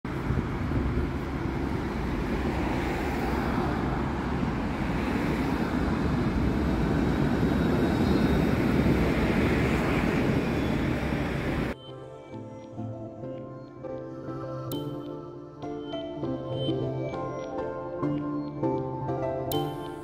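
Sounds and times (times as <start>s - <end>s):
cars passing: 0.1s - 11.8s
tram passing on rails: 0.1s - 11.8s.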